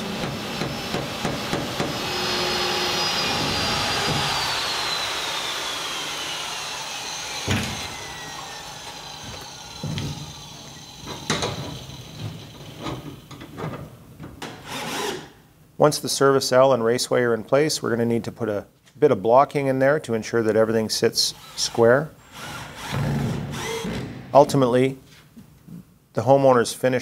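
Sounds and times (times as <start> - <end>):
drill with hole saw cutting wood: 0.4 - 12.8, 14.6 - 15.3, 21.4 - 24.1.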